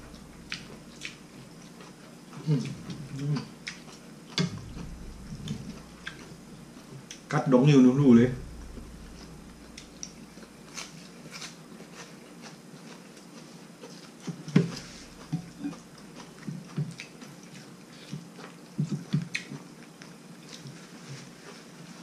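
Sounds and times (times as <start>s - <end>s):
chewing and mouth smacks: 0.5s - 4.8s, 10.7s - 21.6s.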